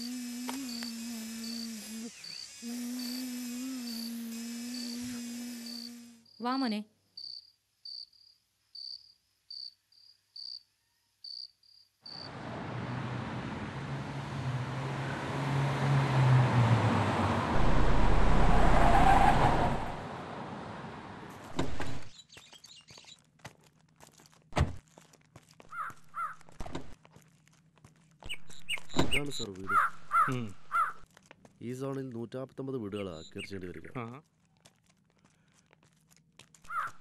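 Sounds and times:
crickets chirping: 0.7 - 4.2, 7.0 - 12.4
car driving on gravel: 12.3 - 22.1.

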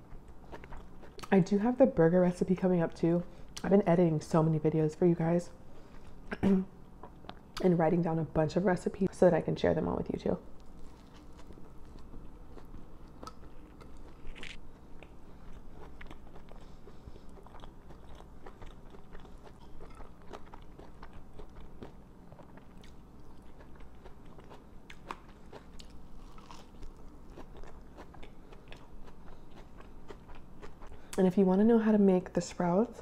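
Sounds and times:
person chewing a sandwich: 0.0 - 1.3, 10.6 - 31.2.

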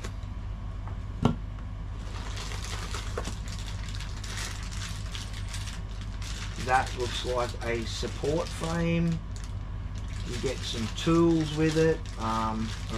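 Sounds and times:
steady low hum: 0.0 - 12.9
plastic bag rustling: 2.0 - 12.9.

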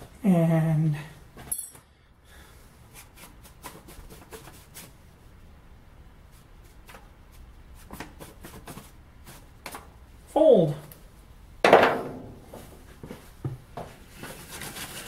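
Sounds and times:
paper crinkling and rustling: 14.0 - 15.0.

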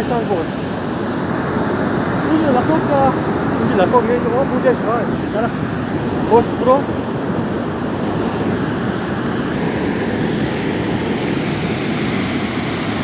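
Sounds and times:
muddy water rushing: 0.0 - 13.0.

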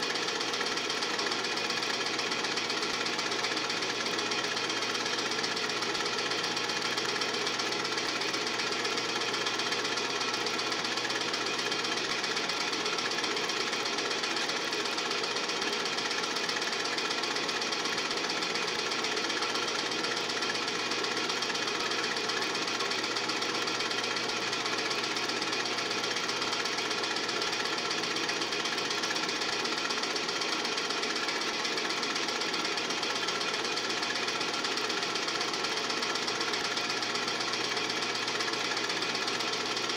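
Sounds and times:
film projector clattering: 0.0 - 39.9.

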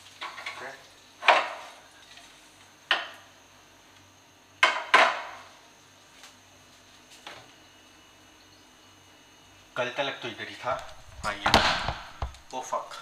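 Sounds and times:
faint steady hum: 0.0 - 13.0
kitchen things knocking and clattering: 10.8 - 13.0.

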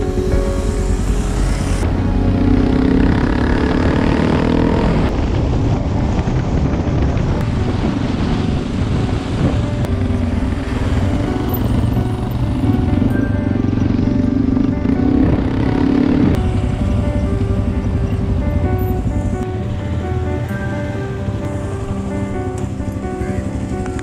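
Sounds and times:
motorcycle engine running: 0.0 - 20.6
dense steady rush of noise: 0.0 - 24.0.

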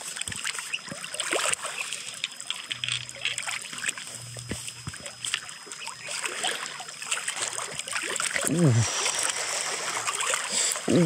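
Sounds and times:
water splashing against stones: 0.0 - 11.0
small clicks and ticks: 0.1 - 5.9.

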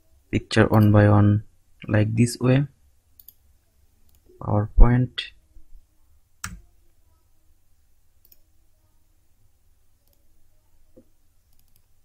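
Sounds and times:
computer mouse clicking: 3.2 - 3.4, 8.2 - 8.5, 10.0 - 10.2, 11.5 - 11.9.

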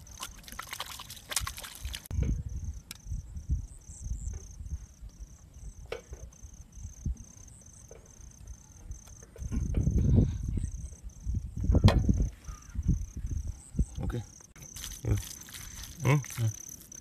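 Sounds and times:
water splashing on hands: 0.0 - 2.1, 14.6 - 17.0
insect chirping: 0.0 - 17.0.

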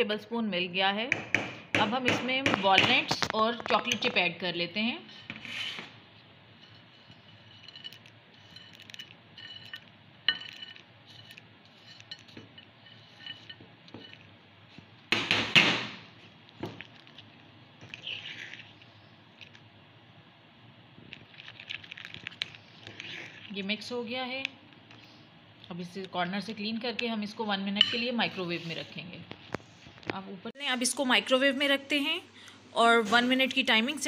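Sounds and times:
spoon scraping ceramic ramekin: 6.5 - 14.8, 16.8 - 19.6, 21.2 - 23.9.

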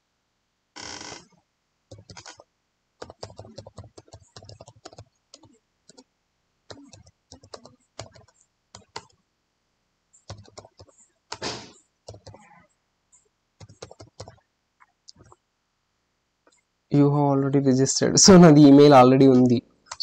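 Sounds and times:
brief loud burst of noise: 11.4 - 11.8.

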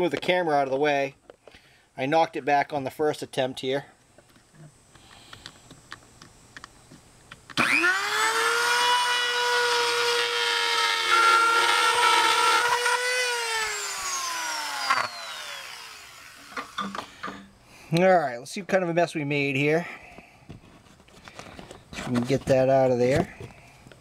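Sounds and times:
rotary tool motor whining: 7.6 - 17.0.

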